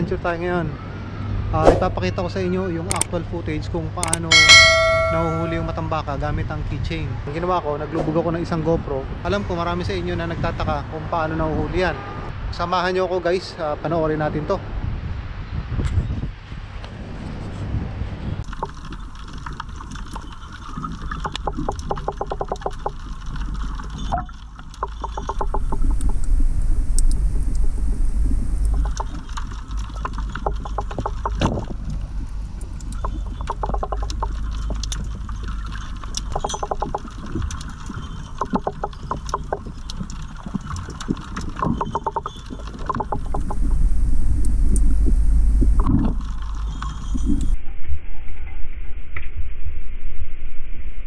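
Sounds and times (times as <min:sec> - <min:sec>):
rapid underwater clicks and crackles: 0:02.8 - 0:04.7, 0:18.4 - 0:47.6
low underwater rumble: 0:18.3 - 0:51.0
water rushing: 0:18.4 - 0:47.6.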